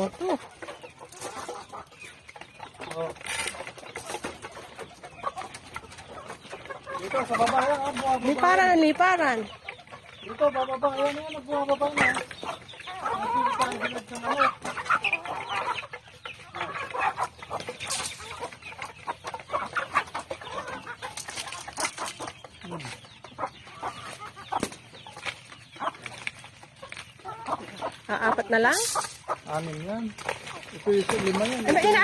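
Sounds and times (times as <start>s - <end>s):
chickens clucking: 0.0s - 32.0s
clicks and rustles: 2.9s - 4.7s.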